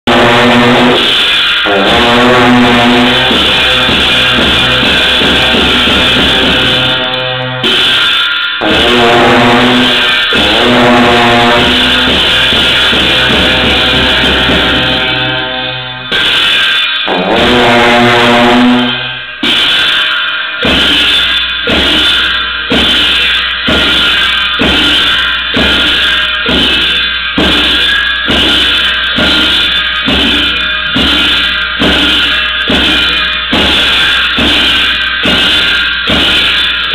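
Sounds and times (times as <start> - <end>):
cymbal crashes: 0.0 - 36.9
drum beats: 0.0 - 36.9
long wavering horn tones: 0.1 - 7.9, 8.6 - 16.2, 17.0 - 19.4.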